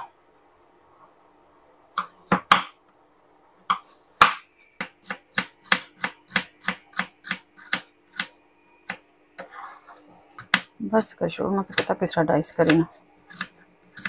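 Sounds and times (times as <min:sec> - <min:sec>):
knife chopping on wooden board: 0:02.0 - 0:02.8, 0:03.7 - 0:09.1.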